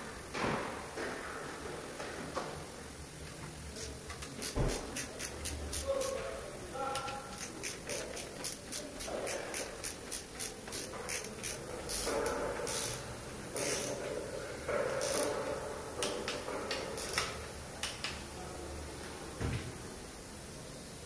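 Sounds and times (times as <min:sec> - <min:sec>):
ratchet wrench clicking: 0:03.8 - 0:06.2, 0:07.3 - 0:14.0, 0:15.0 - 0:15.4, 0:17.0 - 0:17.4.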